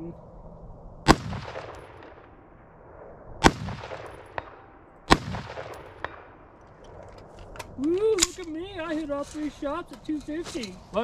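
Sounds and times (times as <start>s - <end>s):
rifle shots echoing: 1.0s - 7.1s.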